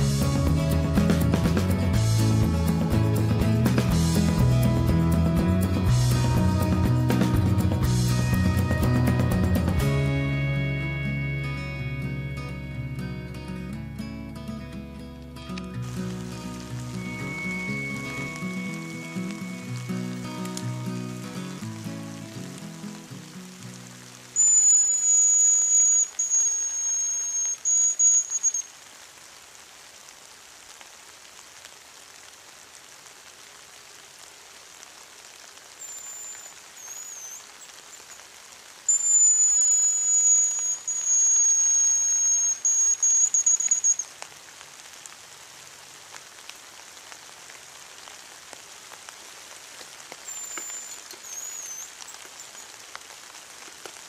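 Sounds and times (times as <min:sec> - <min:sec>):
light drizzle pattering: 0:14.3 - 0:54.0
grouse whistle with trill: 0:16.8 - 0:20.2, 0:24.4 - 0:28.7, 0:35.8 - 0:37.8, 0:38.9 - 0:44.1, 0:50.2 - 0:52.7
high whistle decoy: 0:16.9 - 0:20.2, 0:24.4 - 0:28.7, 0:38.9 - 0:44.1.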